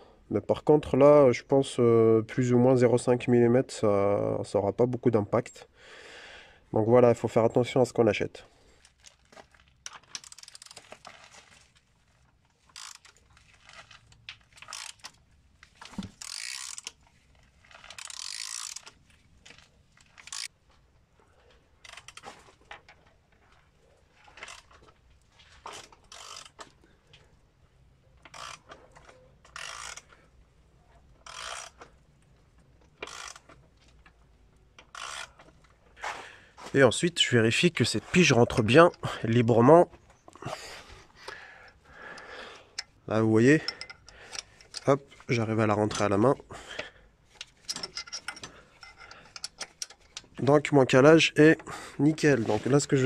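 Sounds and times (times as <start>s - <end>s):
ratchet wrench clicking: 10.1s - 10.8s, 12.7s - 13.2s, 14.6s - 15.2s, 16.2s - 17.0s, 17.7s - 19.0s, 20.2s - 20.5s, 26.1s - 26.6s, 28.3s - 28.8s, 29.5s - 30.2s, 31.2s - 31.9s, 33.0s - 33.5s, 34.8s - 35.4s, 47.4s - 50.2s.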